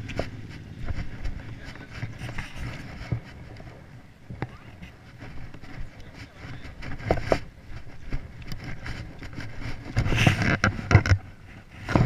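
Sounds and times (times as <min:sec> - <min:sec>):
cloth rubbing on microphone: 0:00.0 - 0:12.0.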